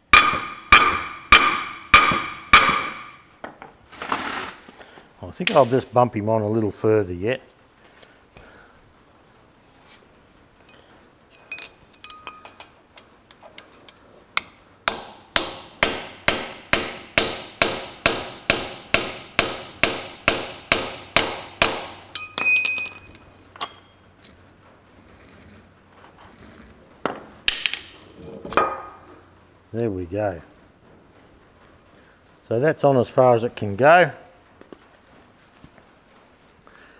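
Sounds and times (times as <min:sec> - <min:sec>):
light metal clinks: 0:10.6 - 0:12.8, 0:22.1 - 0:24.1
ringing metal clatter: 0:10.6 - 0:12.8, 0:22.1 - 0:24.1.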